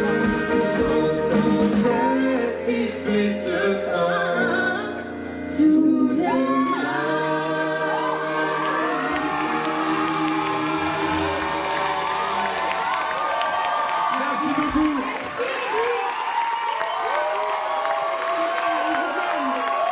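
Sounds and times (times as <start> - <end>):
voices singing together: 0.0 - 13.0
band playing pop: 0.0 - 15.8.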